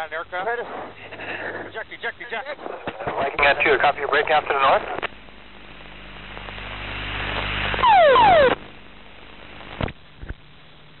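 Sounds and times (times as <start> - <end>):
recorder hum and static: 0.0 - 11.0
loud burst with falling tones: 7.8 - 8.6.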